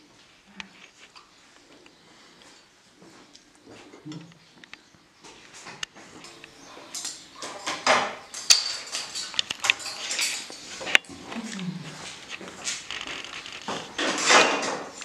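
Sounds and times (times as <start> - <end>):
rustling: 5.4 - 15.0.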